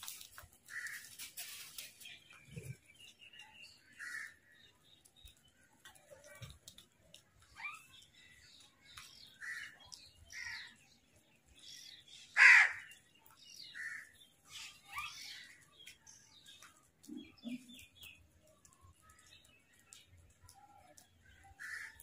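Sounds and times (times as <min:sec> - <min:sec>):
crows cawing: 0:00.7 - 0:01.1, 0:04.0 - 0:04.4, 0:12.4 - 0:12.9, 0:13.8 - 0:14.1, 0:21.6 - 0:22.0
small bird chirping: 0:01.1 - 0:22.0.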